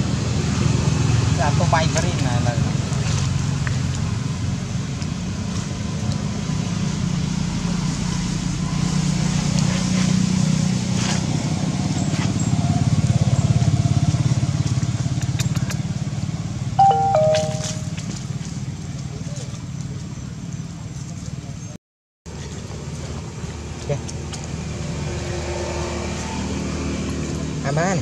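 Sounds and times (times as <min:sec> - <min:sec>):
high-pitched stepped call: 0:16.8 - 0:17.9.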